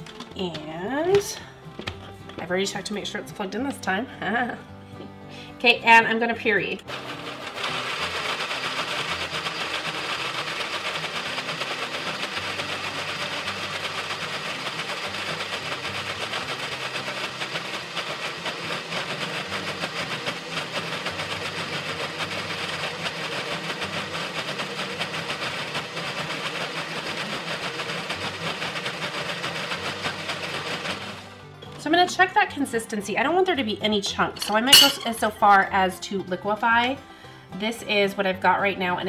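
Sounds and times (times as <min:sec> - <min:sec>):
blender running: 0:06.8 - 0:31.5.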